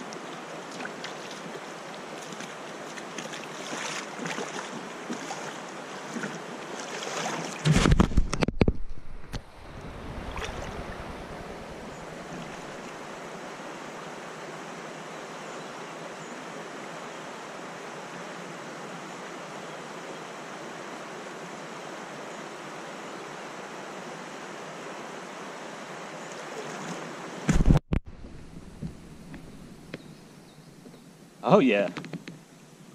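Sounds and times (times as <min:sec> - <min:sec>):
river water rushing: 0:00.0 - 0:07.9, 0:09.5 - 0:27.5.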